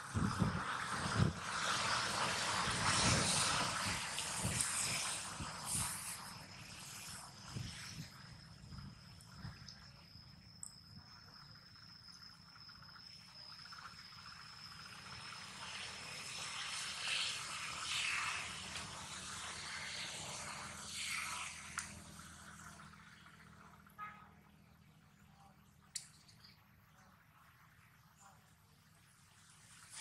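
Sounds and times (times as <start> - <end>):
insect hissing chorus: 0.0 - 23.5
insects whining: 0.0 - 24.0.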